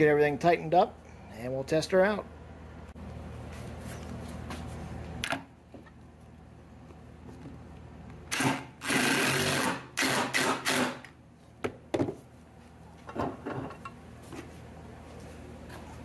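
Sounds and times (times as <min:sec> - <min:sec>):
impact driver running: 0:08.3 - 0:11.1.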